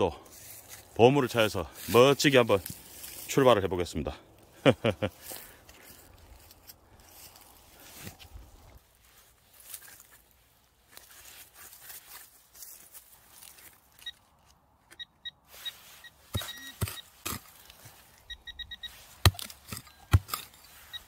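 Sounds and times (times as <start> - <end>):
metal detector beeps: 14.0 - 14.2, 14.9 - 21.0
digging tool scraping soil: 15.4 - 21.0
sharp tool strikes: 16.3 - 17.6, 19.1 - 20.6.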